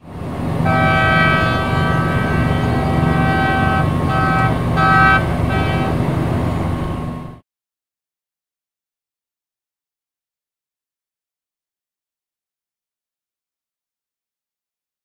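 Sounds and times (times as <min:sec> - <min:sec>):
low engine rumble: 0:00.0 - 0:07.4
ship horn blasts: 0:00.0 - 0:07.4.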